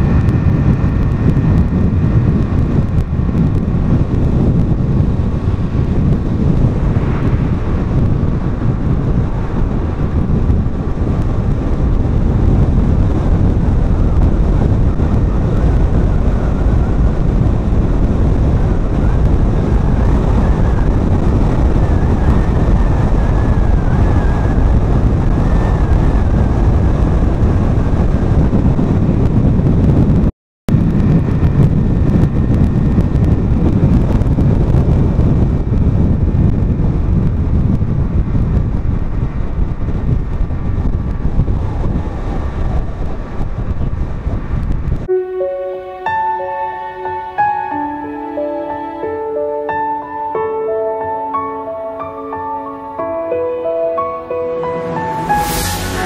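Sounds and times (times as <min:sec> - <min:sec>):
car road noise: 0:00.0 - 0:29.5, 0:30.7 - 0:56.0
wind rumbling on microphone: 0:00.0 - 0:56.0
soft music: 0:45.1 - 0:56.0.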